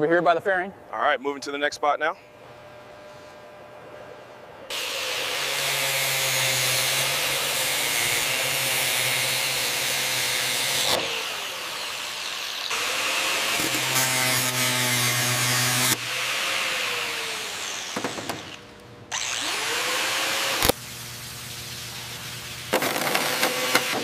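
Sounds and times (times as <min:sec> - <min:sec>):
power tool running: 0:04.7 - 0:21.0, 0:21.9 - 0:24.0.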